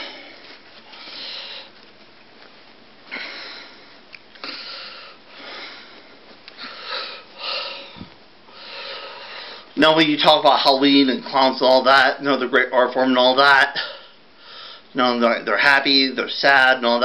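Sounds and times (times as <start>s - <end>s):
man breathing through nose: 3.1s - 9.7s.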